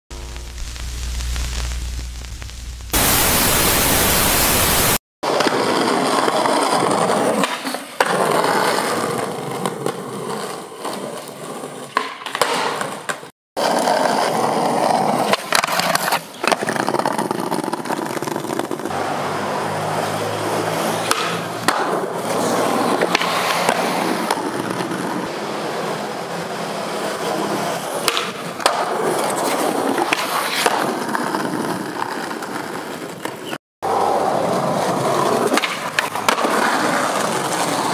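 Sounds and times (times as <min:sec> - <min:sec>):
loud hiss: 0:00.1 - 0:05.0
skateboard wheels rolling on concrete: 0:00.1 - 0:37.9
skateboard clacks: 0:05.3 - 0:19.0, 0:19.7 - 0:37.9.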